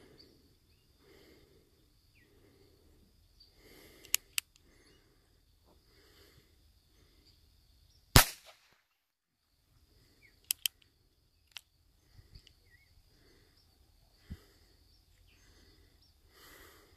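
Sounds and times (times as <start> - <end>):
faint sharp clicks: 4.0 - 4.8, 10.4 - 11.7, 12.3 - 12.6
air pistol shot: 8.2 - 8.8.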